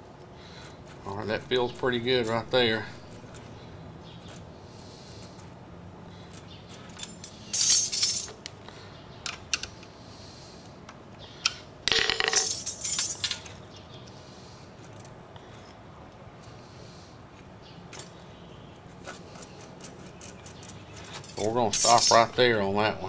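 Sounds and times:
metal tools clicking and rattling: 0.7s - 5.6s, 6.2s - 8.6s, 11.4s - 13.8s, 17.8s - 18.2s, 18.9s - 22.4s.

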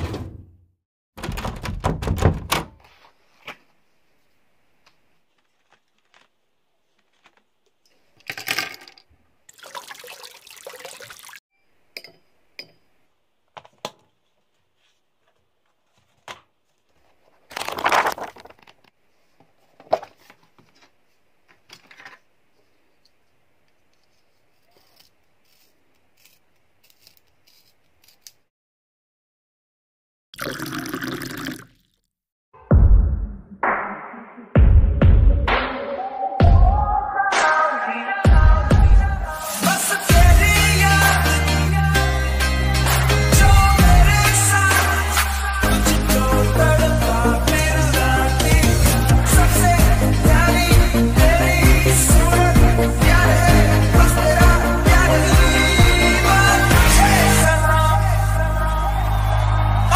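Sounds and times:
rustling and clatter of supplies: 5.2s - 9.0s, 13.5s - 22.8s.

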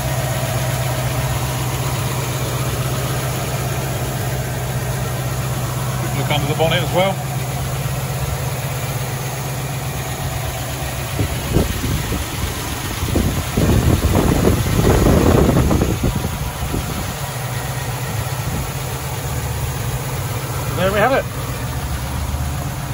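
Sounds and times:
engine idling: 0.0s - 22.9s.

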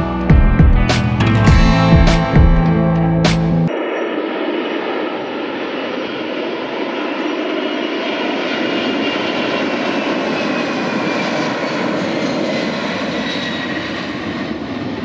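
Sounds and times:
jet engines roaring with whine: 3.5s - 15.0s.

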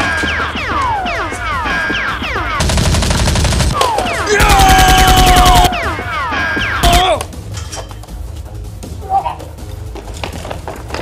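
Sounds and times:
automatic gunfire bursts: 2.6s - 3.8s, 4.4s - 5.7s.

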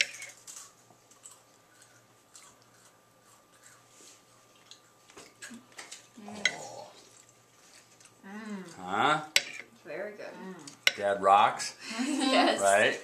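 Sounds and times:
quiet chewing: 0.1s - 9.8s.

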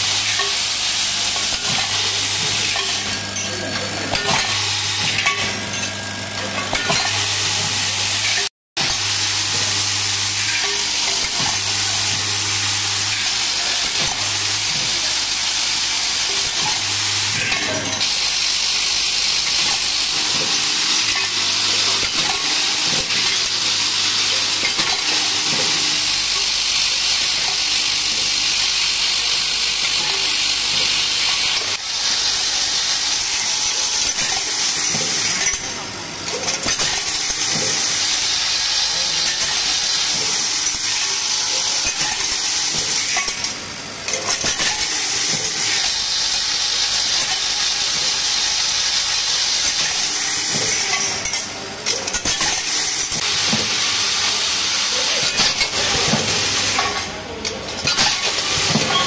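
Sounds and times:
machine high hiss: 6.9s - 35.6s.

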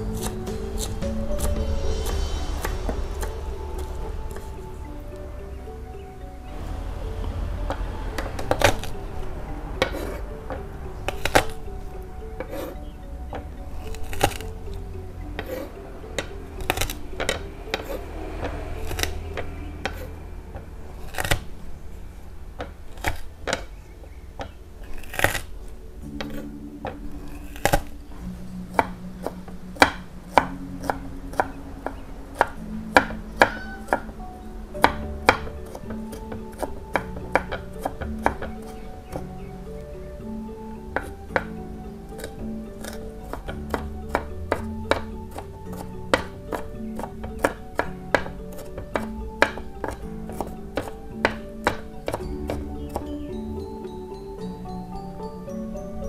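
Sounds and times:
soft background music: 0.0s - 56.0s
knife chopping on wooden board: 42.2s - 53.1s.

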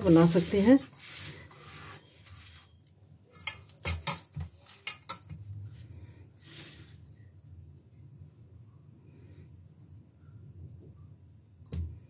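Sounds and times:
spatula scraping filling in bowl: 0.0s - 5.4s.

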